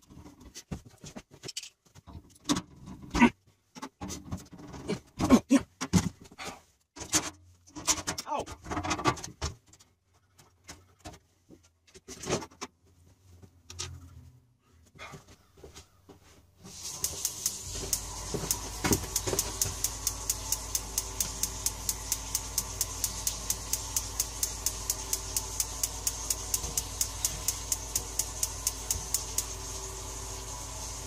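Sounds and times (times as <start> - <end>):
steady gas hiss: 16.6 - 31.0
igniter clicking rapidly: 16.8 - 29.8.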